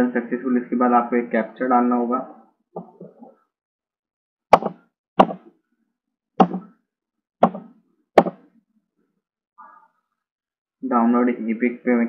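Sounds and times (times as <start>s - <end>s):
keyboard keys tapping: 6.4s - 6.7s, 7.4s - 8.4s.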